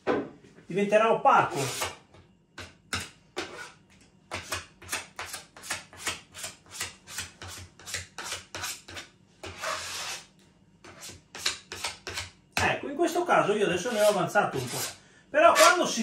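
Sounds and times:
spatula scraping over wood: 1.5 - 1.9, 3.4 - 3.8, 6.4 - 10.3, 13.8 - 16.0.

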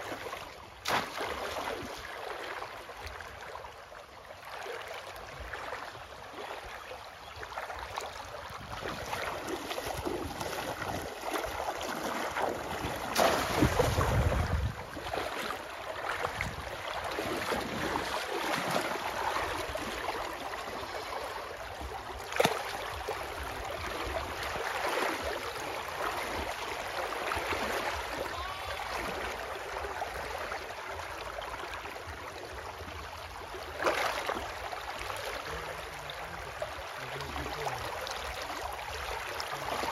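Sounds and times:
river water splashing and sloshing: 0.0 - 39.9
water rush with low rumble: 0.0 - 39.9
sharp single splashes: 0.8 - 2.0, 12.0 - 14.4, 22.3 - 22.8.

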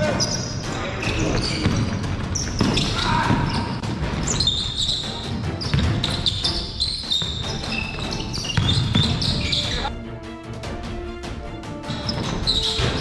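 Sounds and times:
sneakers squeaking on court: 0.2 - 9.9, 11.9 - 13.0
basketball bouncing on floor: 5.6 - 6.4, 8.5 - 9.4.

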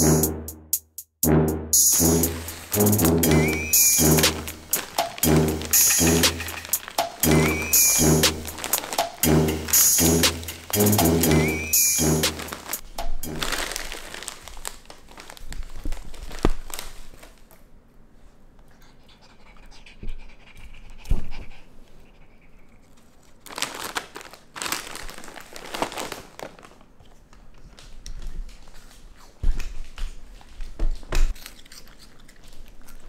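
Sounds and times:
raccoon panting and sniffing: 18.7 - 23.0.

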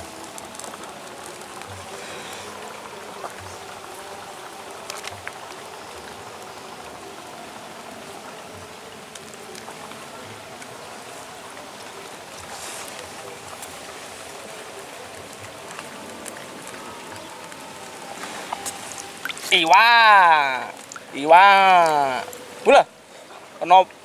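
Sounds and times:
outdoor ambient hiss: 0.0 - 24.0.

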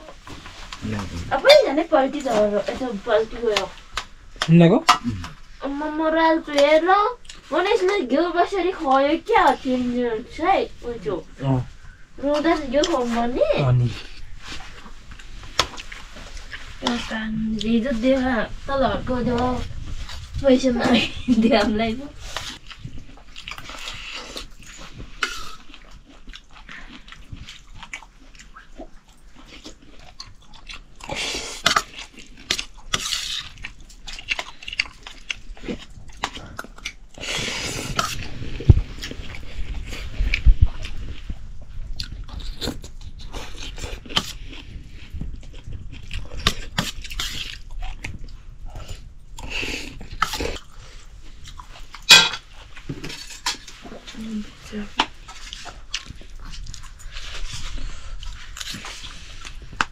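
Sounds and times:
chewing: 0.0 - 59.9
metal clank from wok: 52.1 - 52.4
spoon scraping steel plate: 52.1 - 52.4.

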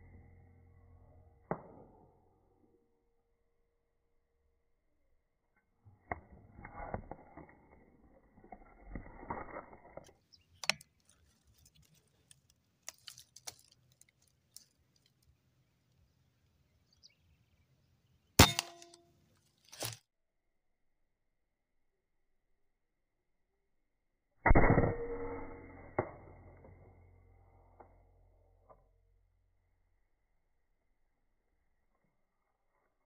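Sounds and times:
handling rustling and clicks: 9.1 - 15.4.

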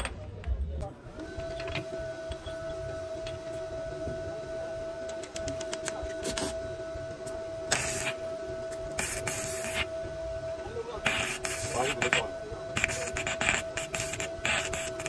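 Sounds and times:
steady high hum: 0.0 - 15.0
welding arc crackling: 5.0 - 15.0.

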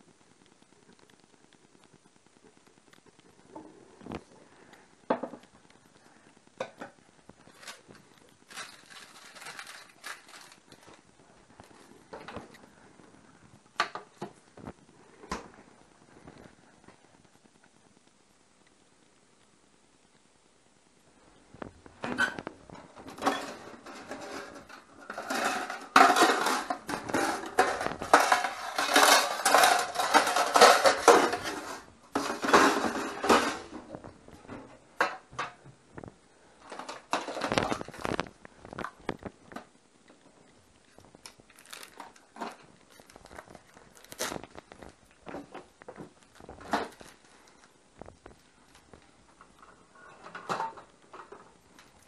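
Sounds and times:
kitchenware clattering: 23.0 - 33.7.

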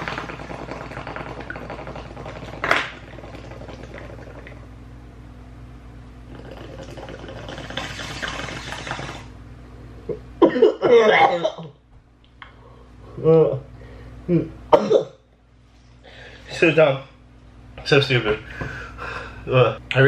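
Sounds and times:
bong water bubbling: 0.0 - 4.7, 6.2 - 9.4.

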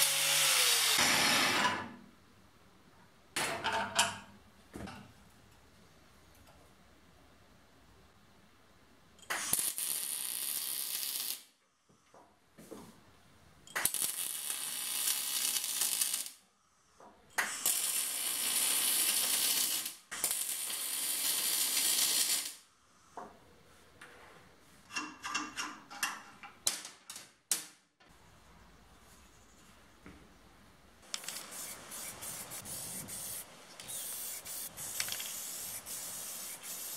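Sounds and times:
welding arc crackling: 9.3 - 11.5, 13.8 - 16.4, 17.4 - 22.6, 31.0 - 36.9.

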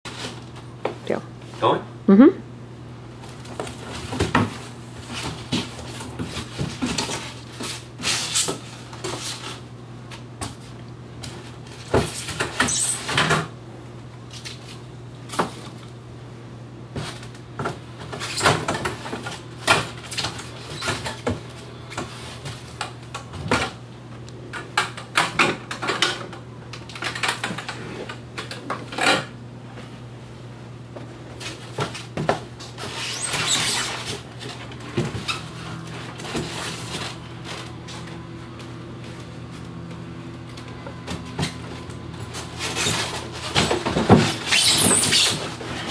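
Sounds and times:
cardboard rustling and scraping: 3.2 - 13.1, 31.3 - 39.8, 41.1 - 45.9.

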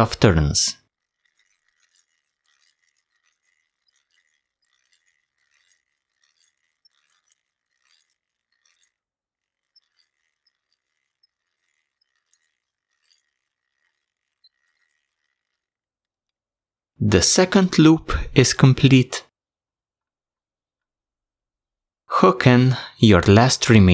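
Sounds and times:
hand drill gears ticking: 0.0 - 17.6.

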